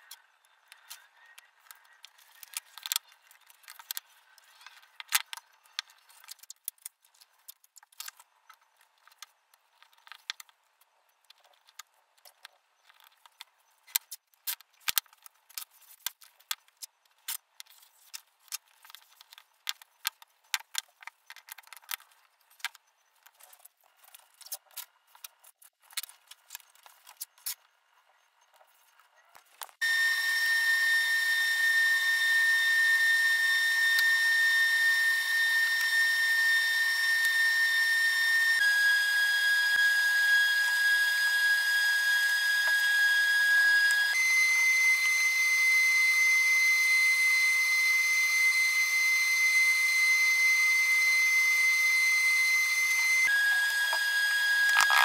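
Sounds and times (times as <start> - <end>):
motor whine: 29.8 - 55.0
masking tape crackling: 52.9 - 55.0.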